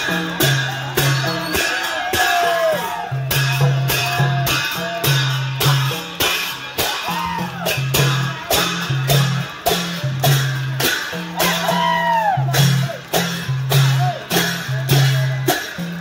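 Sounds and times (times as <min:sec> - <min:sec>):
drums deep notes: 0:00.0 - 0:16.0
hand cymbals clashing: 0:00.0 - 0:16.0.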